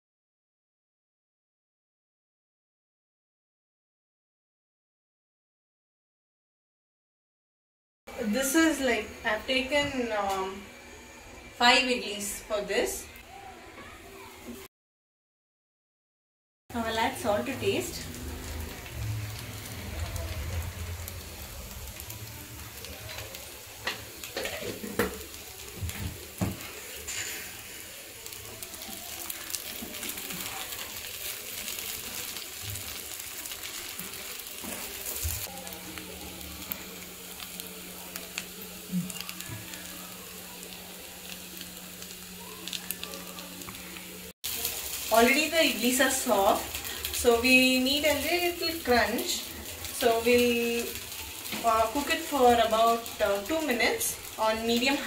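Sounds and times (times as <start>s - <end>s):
food sizzling in butter: 16.7s - 55.0s.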